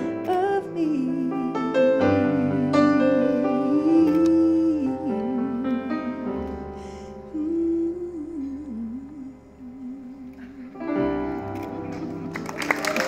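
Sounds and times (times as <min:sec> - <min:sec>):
woman singing wordless notes: 0:00.0 - 0:06.6, 0:07.2 - 0:11.1
piano chords: 0:00.0 - 0:13.0.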